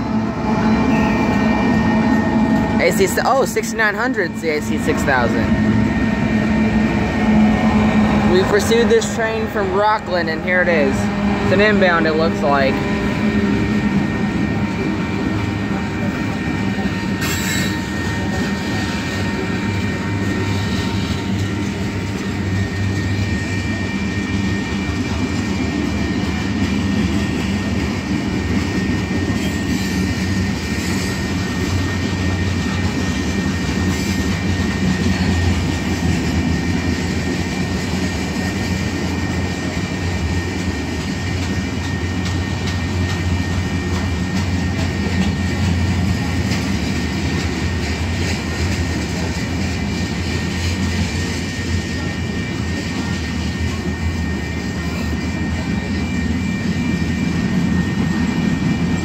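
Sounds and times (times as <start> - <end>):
locomotive low drone: 0.0 - 59.0
high wheel squeal: 17.1 - 19.5.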